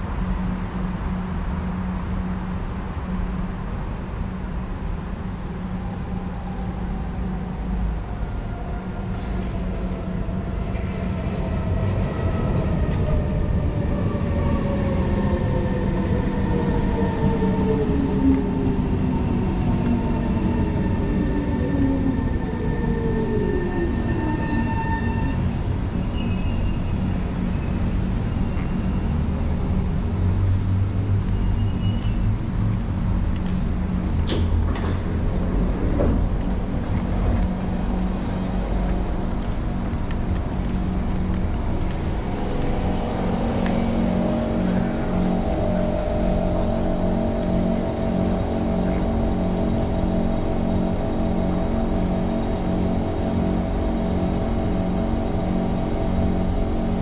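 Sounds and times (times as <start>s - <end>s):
train wheels rumbling: 4.2s - 57.0s
electric train motor whine: 36.2s - 57.0s.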